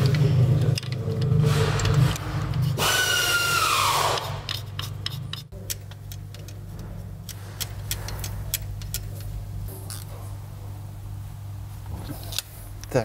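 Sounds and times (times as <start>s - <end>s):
steady low hum: 0.0s - 13.0s
metallic clicks and taps of tools: 4.5s - 9.3s.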